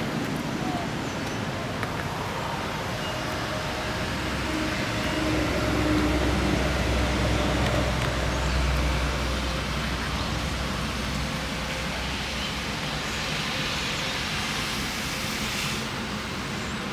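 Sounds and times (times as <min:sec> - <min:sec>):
outdoor low rumble: 0:01.5 - 0:12.1.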